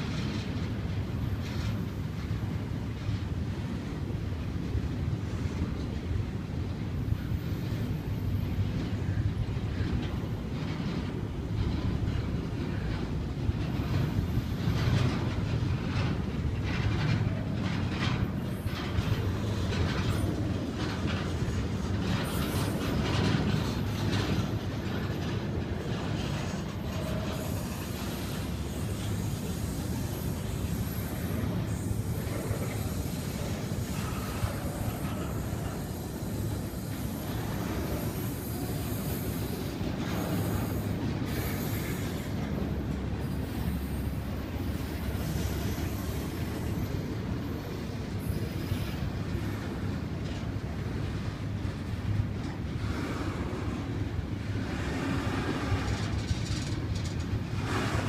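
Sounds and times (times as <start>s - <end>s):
train wheels rumbling on rail: 0.0s - 58.0s
freight car clicks and clanks: 55.6s - 58.0s.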